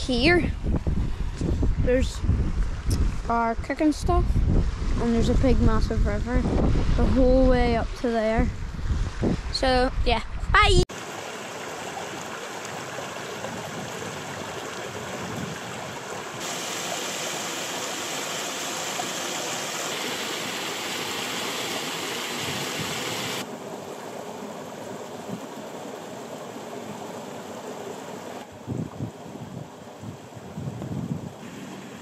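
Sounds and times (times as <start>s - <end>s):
river rushing over rocks: 10.9s - 28.4s.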